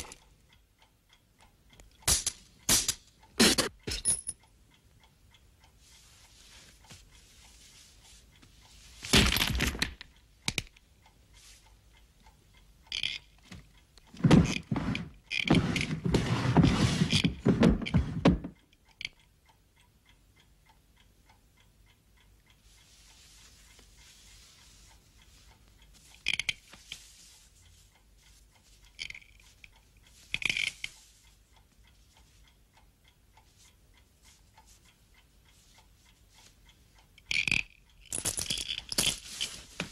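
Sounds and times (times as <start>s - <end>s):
scraping and clattering: 14.2s - 18.5s.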